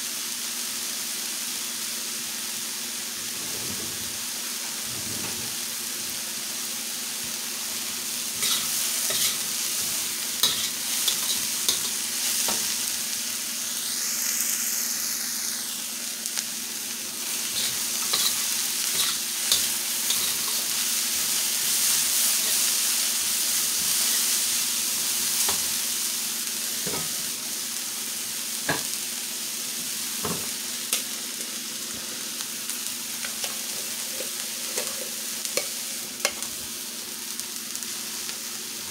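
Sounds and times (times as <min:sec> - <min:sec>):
vegetables sizzling in a wok: 0:00.0 - 0:38.9
metal spatula scraping wok: 0:08.3 - 0:12.8, 0:17.3 - 0:20.8, 0:33.2 - 0:36.5.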